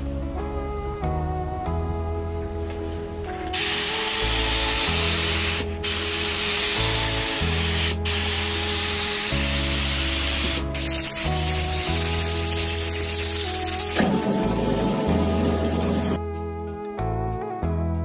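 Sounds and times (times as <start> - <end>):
background music: 0.0 - 18.0
spray gun hissing: 3.5 - 16.2.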